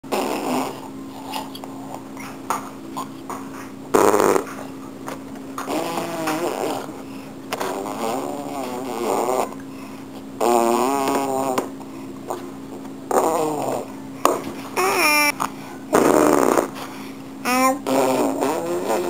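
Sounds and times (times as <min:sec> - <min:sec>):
baby blowing raspberries: 0:00.1 - 0:01.5, 0:03.9 - 0:04.6, 0:05.7 - 0:07.0, 0:07.6 - 0:09.6, 0:10.4 - 0:11.7, 0:13.1 - 0:13.9, 0:14.8 - 0:16.8, 0:17.4 - 0:19.0.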